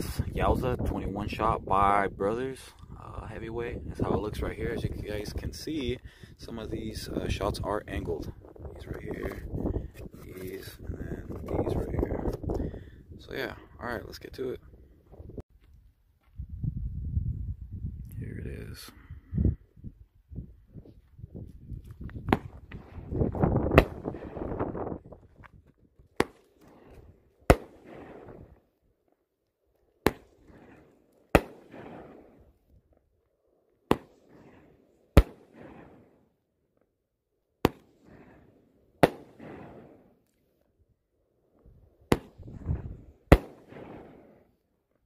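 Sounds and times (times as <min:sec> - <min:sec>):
fireworks bangs with crackle: 0:22.2 - 0:24.9, 0:26.1 - 0:28.6, 0:30.0 - 0:32.4, 0:33.9 - 0:36.2, 0:37.6 - 0:40.2, 0:42.1 - 0:44.5.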